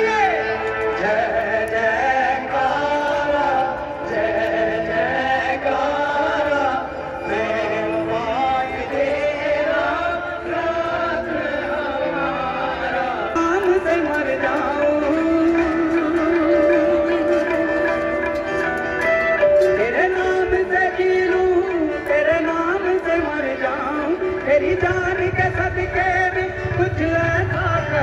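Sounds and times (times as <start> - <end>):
man singing: 0.0 - 18.7, 19.3 - 28.0
live band music: 13.3 - 28.0.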